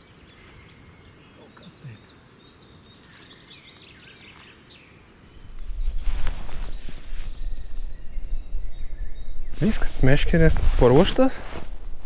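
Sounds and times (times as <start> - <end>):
small birds chirping: 0.0 - 12.0
low rumble on microphone: 5.3 - 12.0.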